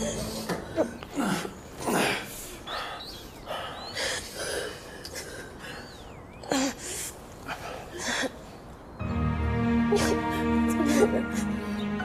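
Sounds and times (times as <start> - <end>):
woman sobbing: 9.8 - 12.0.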